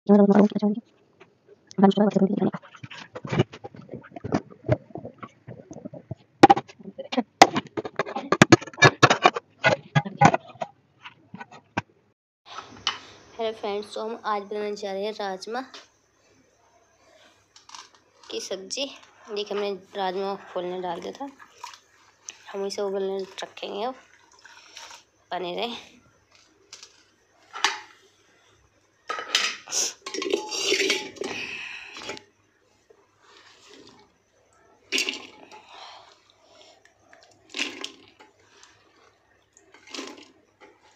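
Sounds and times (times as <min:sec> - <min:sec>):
metal cookware clanking: 0:29.1 - 0:31.3
steel pots clattering and scraping: 0:29.1 - 0:32.2, 0:37.4 - 0:40.9
ladle scraping metal pan: 0:30.1 - 0:31.3.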